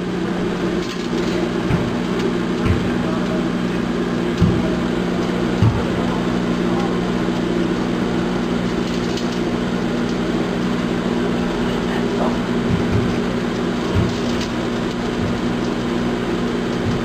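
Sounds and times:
microwave oven humming: 0.0 - 17.0
low bumps: 10.8 - 17.0.

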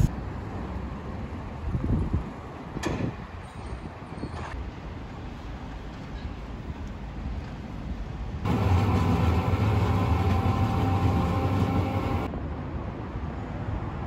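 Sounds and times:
street ambience: 0.0 - 14.0
streetcar interior hum: 4.7 - 12.4.

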